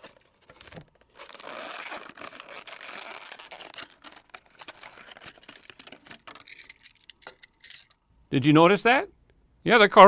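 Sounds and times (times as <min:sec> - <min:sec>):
plastic packaging tearing: 0:00.0 - 0:07.5
plastic crinkling and clicking: 0:00.0 - 0:07.9.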